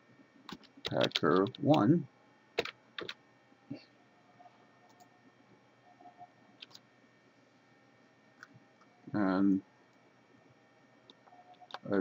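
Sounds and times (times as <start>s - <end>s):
soft computer clicks: 6.6s - 6.8s.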